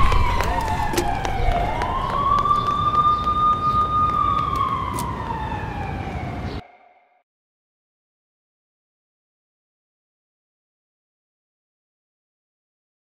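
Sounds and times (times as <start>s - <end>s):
street noise: 0.0s - 7.0s
siren wailing: 0.0s - 7.2s.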